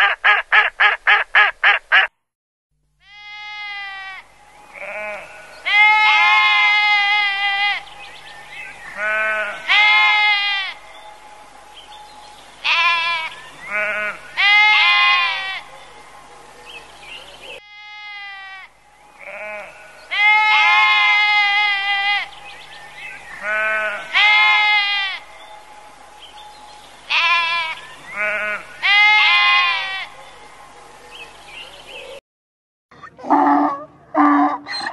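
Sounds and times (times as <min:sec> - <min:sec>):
sheep bleating: 0:03.0 - 0:08.0, 0:08.9 - 0:10.8, 0:12.6 - 0:15.7, 0:17.6 - 0:22.4, 0:23.3 - 0:25.3, 0:27.1 - 0:30.2.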